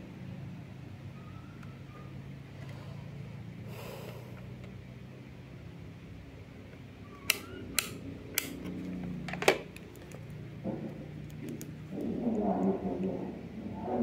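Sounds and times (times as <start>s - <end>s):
steady low hum: 0.0s - 14.0s
sharp clicks and taps: 11.2s - 12.1s.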